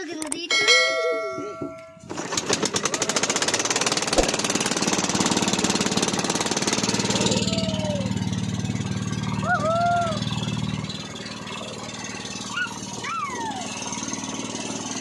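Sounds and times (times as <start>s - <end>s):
metallic ringing: 0.5s - 2.3s
small boat engine knocking: 0.7s - 15.0s.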